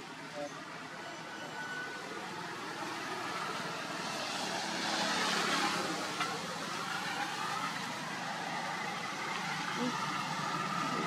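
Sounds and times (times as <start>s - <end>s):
vehicle passing by: 2.6s - 11.0s.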